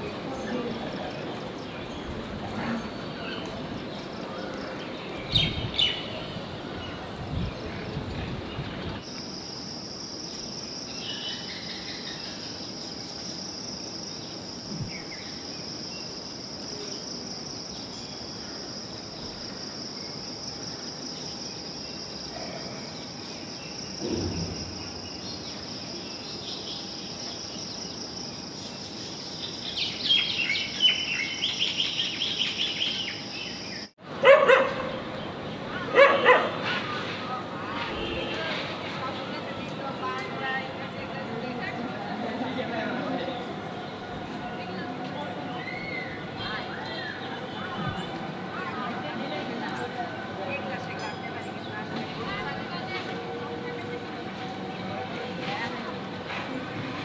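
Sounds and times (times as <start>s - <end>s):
high insect drone: 9.0s - 33.9s.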